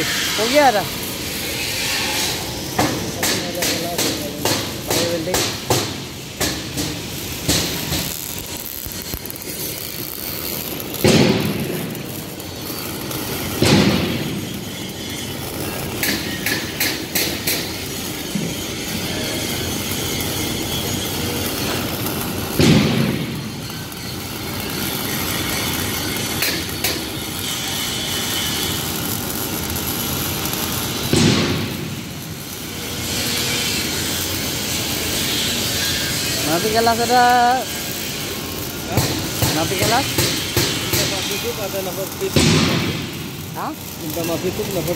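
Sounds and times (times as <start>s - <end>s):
welding arc crackle and hiss: 0.0s - 44.9s
loud thumps echoing: 42.3s - 43.4s.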